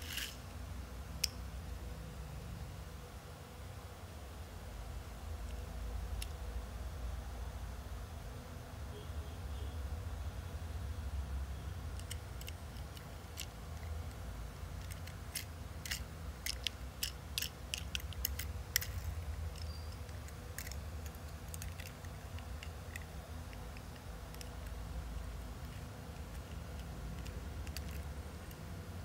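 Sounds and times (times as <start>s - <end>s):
steady low hum: 0.0s - 29.0s
toy truck clicking and tapping: 12.0s - 14.2s, 14.8s - 24.8s, 25.6s - 28.6s.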